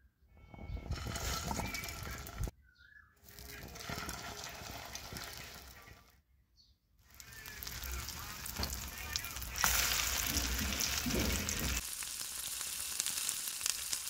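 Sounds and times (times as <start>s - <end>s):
patties sizzling in hot oil: 3.2s - 6.0s, 7.1s - 14.0s.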